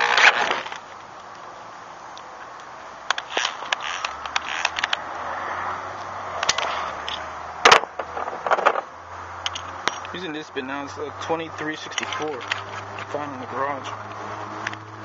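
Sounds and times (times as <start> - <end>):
tools clicking and knocking: 9.4 - 10.2.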